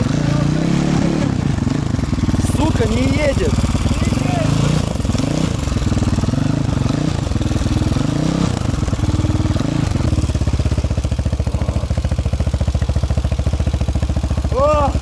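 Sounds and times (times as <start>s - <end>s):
motorcycle engine revving: 0.0s - 15.0s
person talking: 2.4s - 4.7s.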